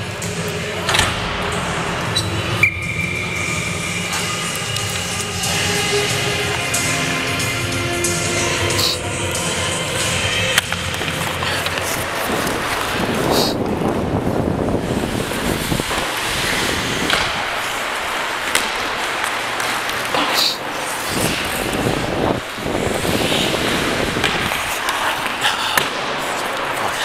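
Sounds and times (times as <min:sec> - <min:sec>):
ice skate blades scraping: 0:01.9 - 0:27.0
hockey stick clacks: 0:04.0 - 0:07.1, 0:10.5 - 0:14.0, 0:15.2 - 0:22.0, 0:23.0 - 0:27.0.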